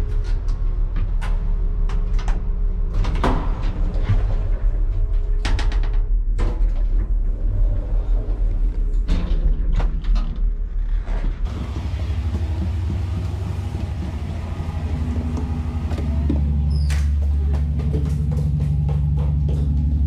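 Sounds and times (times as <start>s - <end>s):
elevator car rumbling: 11.4s - 20.0s
knocks and rattles: 11.4s - 20.0s
pulsing hum: 11.5s - 20.0s.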